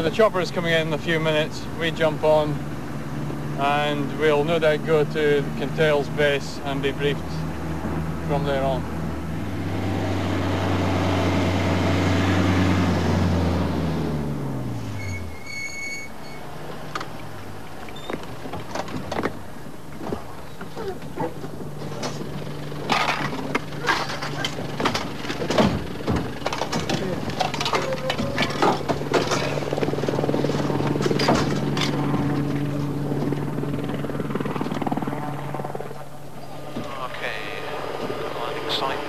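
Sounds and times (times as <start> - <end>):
vehicle engine running: 0.0 - 15.4, 16.6 - 39.0
short high squeal: 14.8 - 16.5
doors and gear clunking: 17.8 - 33.4
sharp knocks and bangs: 21.2 - 33.4.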